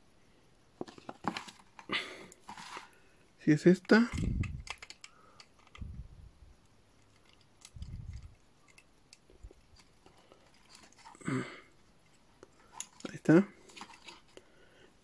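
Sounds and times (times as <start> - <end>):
plastic toy parts clicking: 3.8 - 5.9, 7.0 - 11.2, 12.4 - 14.4.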